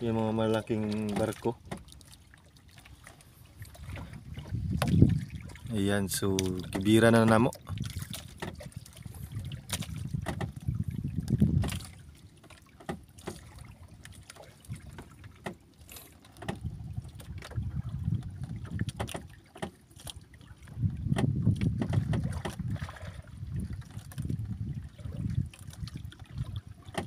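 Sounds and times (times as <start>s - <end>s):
water sloshing against boat hull: 0.0s - 27.0s
wind on microphone: 3.5s - 12.1s, 16.5s - 19.1s, 20.6s - 27.0s
light clicks and knocks: 14.3s - 15.6s, 16.2s - 16.6s, 18.6s - 19.8s.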